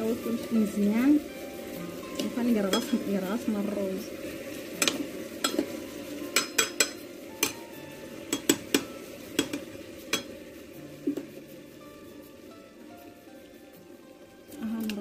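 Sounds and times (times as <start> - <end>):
metal spoon stirring in a pot: 0.9 - 7.6, 8.2 - 10.6
spoon clinking against pot: 2.7 - 3.0, 4.8 - 5.7, 6.3 - 7.6, 8.3 - 10.4.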